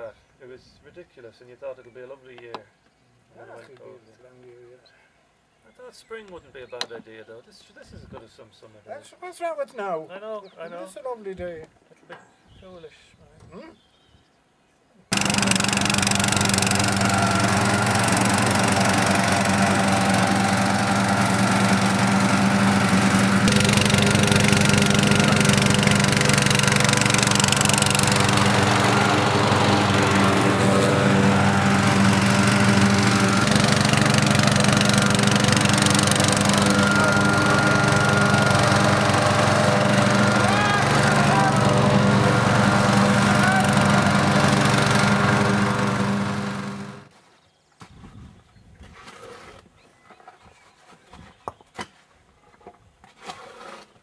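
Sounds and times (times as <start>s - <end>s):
lawn tractor engine running: 15.1s - 47.1s.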